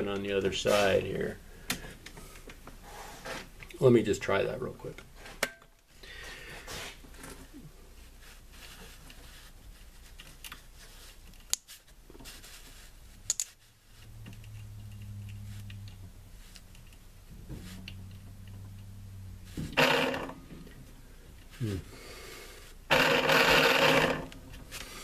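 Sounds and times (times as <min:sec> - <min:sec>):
motor humming: 0:13.9 - 0:21.4
loud gearbox noise burst: 0:19.6 - 0:20.4, 0:22.9 - 0:24.3.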